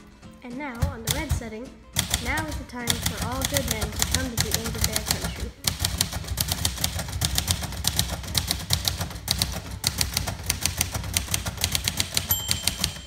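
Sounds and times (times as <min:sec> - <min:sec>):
typewriter keystrokes clattering: 0:01.0 - 0:01.4, 0:02.0 - 0:13.0
typewriter margin bell ding: 0:11.9 - 0:13.0.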